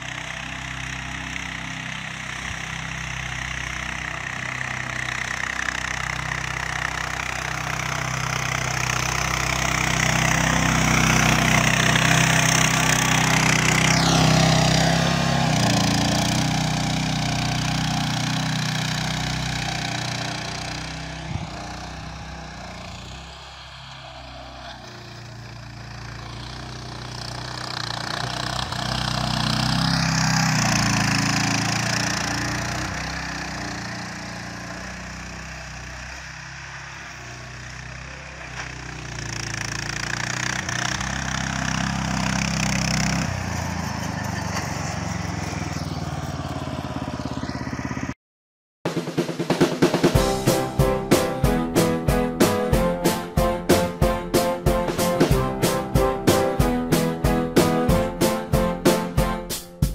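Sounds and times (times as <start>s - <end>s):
blade pushing snow: 0.0s - 36.0s
mini tractor engine running: 0.0s - 48.1s.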